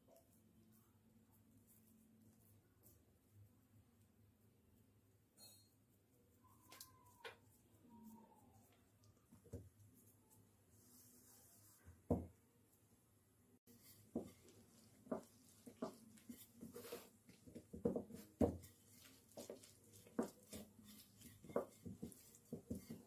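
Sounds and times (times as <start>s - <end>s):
hands patting dough on steel plate: 13.6s - 23.0s.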